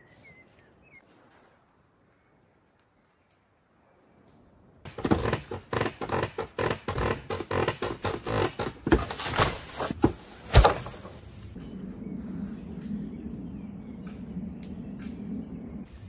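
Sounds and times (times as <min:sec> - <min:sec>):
sharp knocks and crunches: 0:04.9 - 0:11.3.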